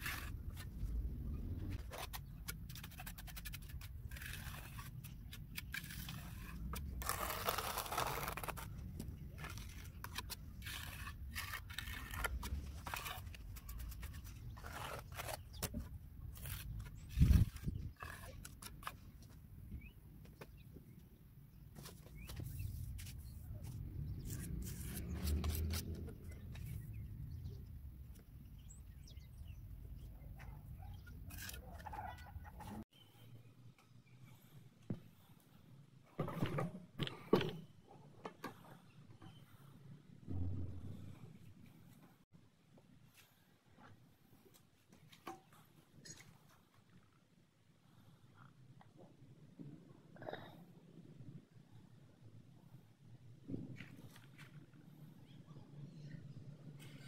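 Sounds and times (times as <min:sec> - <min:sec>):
low rumble: 0:40.3 - 0:42.2.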